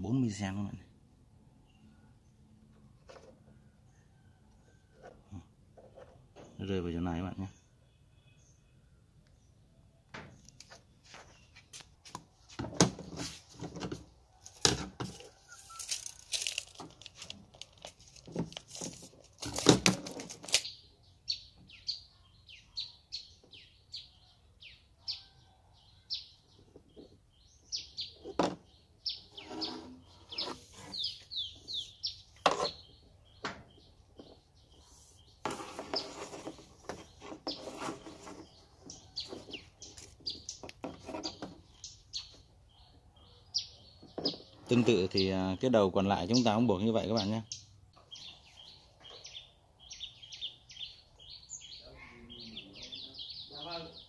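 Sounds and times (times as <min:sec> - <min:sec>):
bamboo sticks clattering on table: 0:12.6 - 0:20.7
small bird chirping: 0:20.4 - 0:54.0.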